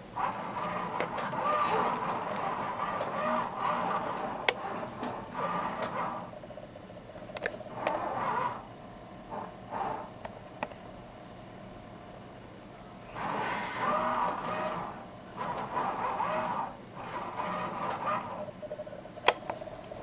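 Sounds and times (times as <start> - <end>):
camcorder zoom motor whirring: 0.2 - 6.4, 7.7 - 8.7, 9.3 - 10.3, 13.1 - 18.5.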